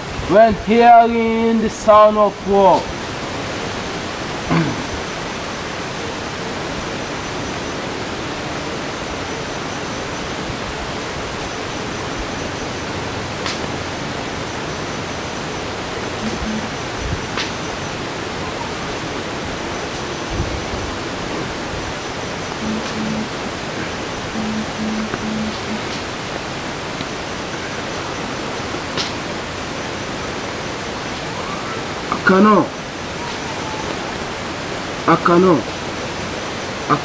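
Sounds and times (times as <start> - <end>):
steady hiss: 0.0 - 37.0
faint clicks: 22.6 - 23.3.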